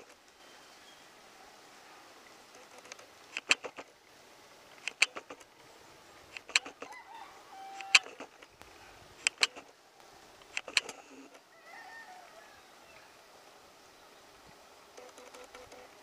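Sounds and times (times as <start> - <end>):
faint steady hiss: 0.0 - 16.0
short sharp clicks: 2.6 - 3.9, 4.8 - 5.5, 6.3 - 6.9, 7.8 - 9.7, 10.4 - 11.1.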